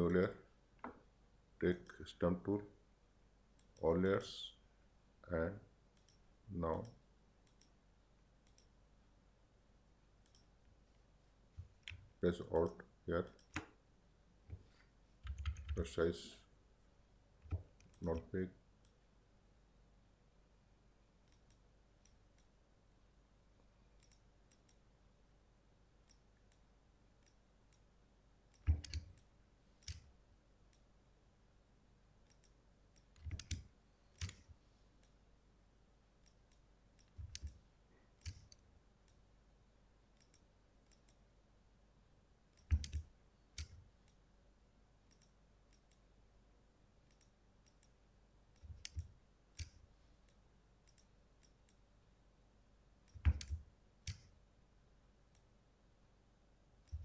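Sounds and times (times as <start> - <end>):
computer mouse clicks: 6.0 - 7.8, 8.4 - 8.7, 10.2 - 10.5, 11.6 - 13.8, 21.2 - 22.5, 24.0 - 24.8, 28.5 - 30.1, 32.2 - 35.2, 36.2 - 39.2, 40.2 - 41.2, 42.5 - 44.2, 45.1 - 46.0, 47.1 - 51.8, 53.0 - 54.3.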